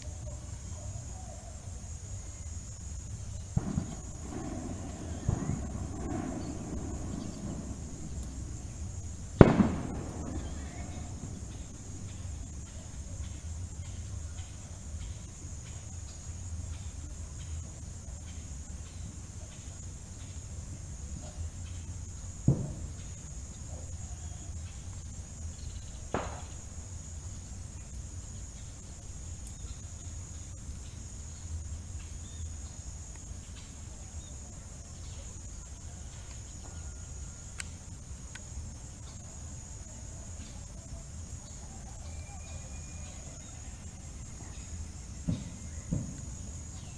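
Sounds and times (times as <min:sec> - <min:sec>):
high insect trill: 0:00.0 - 0:46.9
low rumble: 0:03.6 - 0:13.3
sharp bangs: 0:03.6 - 0:13.4, 0:26.2 - 0:26.6.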